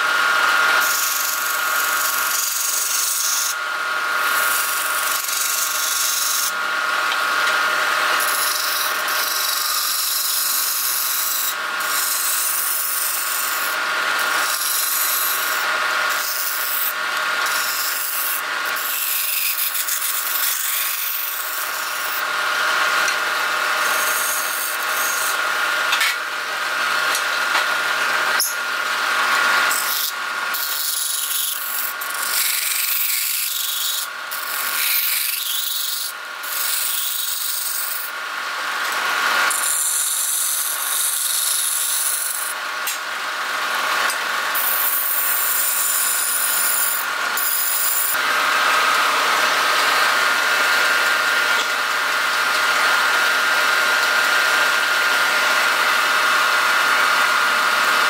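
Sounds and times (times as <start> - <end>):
wood lathe whine: 0.0 - 58.0.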